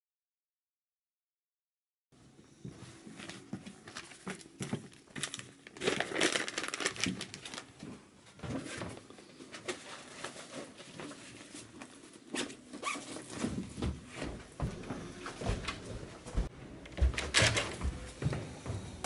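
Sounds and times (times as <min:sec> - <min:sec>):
rustling crinkling handling noise: 0:03.0 - 0:14.3
backpack fabric rustling: 0:12.3 - 0:13.5.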